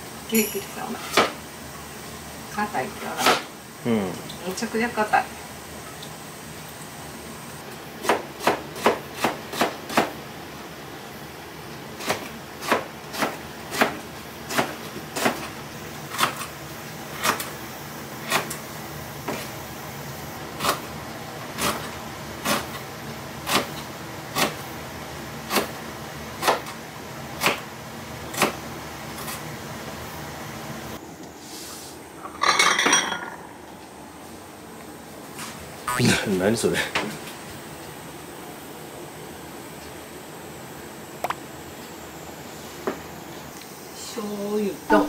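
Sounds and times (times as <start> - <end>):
knife chopping vegetables: 8.0 - 10.1, 12.0 - 15.5, 16.1 - 16.5, 23.4 - 24.6, 25.5 - 25.8, 26.4 - 26.8, 28.3 - 28.6.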